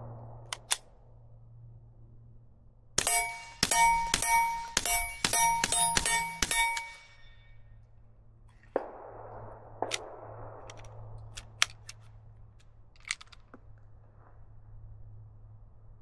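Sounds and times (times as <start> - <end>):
suppressed gunshots: 3.0 - 7.1, 8.6 - 12.1
steel target ringing clang: 3.0 - 7.7
small clicks: 10.7 - 13.8.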